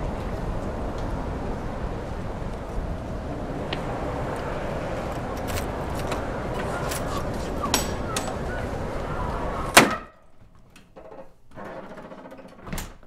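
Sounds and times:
city street traffic: 0:00.0 - 0:10.0
door shutting with a bang: 0:09.6 - 0:10.1.

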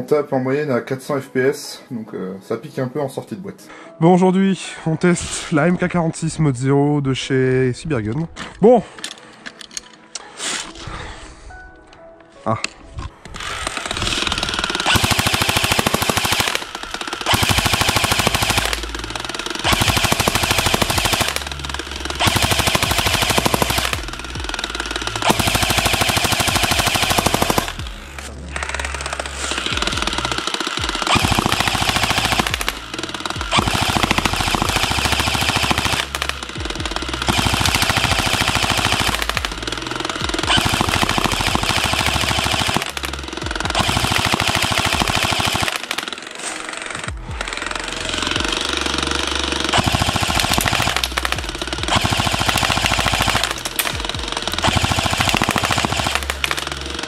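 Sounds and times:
airsoft gun firing bursts: 0:13.4 - 0:57.0.

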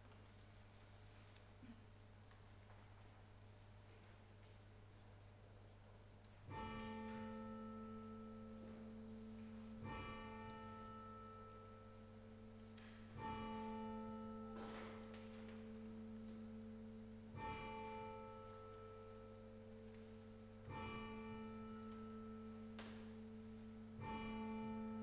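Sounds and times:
church bell ringing: 0:06.4 - 0:25.0.

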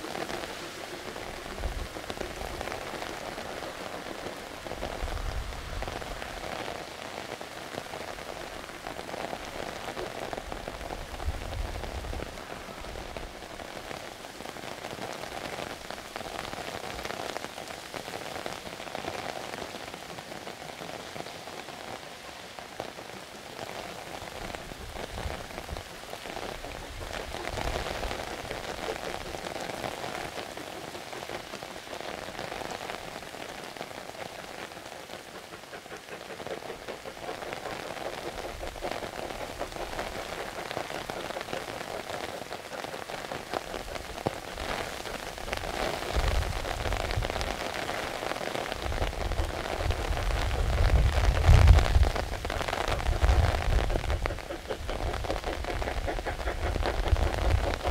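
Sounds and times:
steady rain: 0:00.0 - 0:57.9
steam locomotive working hard: 0:23.1 - 0:57.9.

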